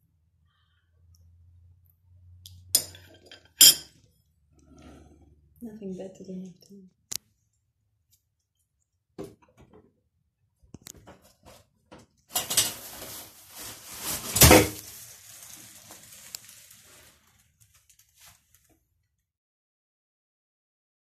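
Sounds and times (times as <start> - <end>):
rustling and scraping: 10.8 - 18.8.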